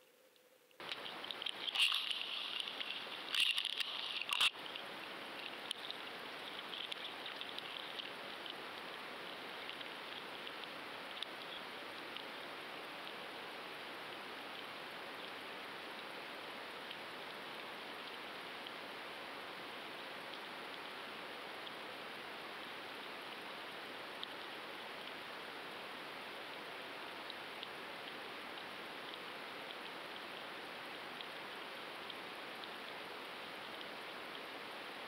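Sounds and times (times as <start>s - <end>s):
underwater water rush: 0.8s - 15.9s.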